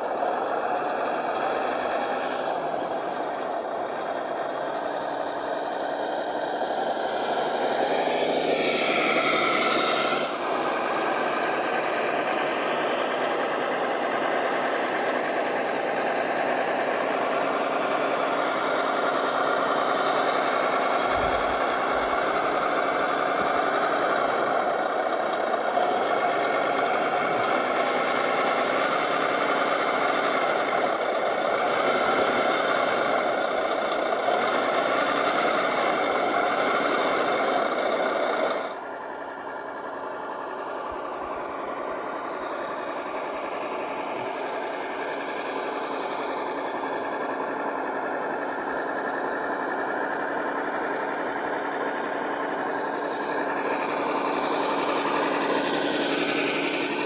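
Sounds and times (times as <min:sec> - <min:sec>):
rc truck crawling through sand: 0:00.0 - 0:57.0.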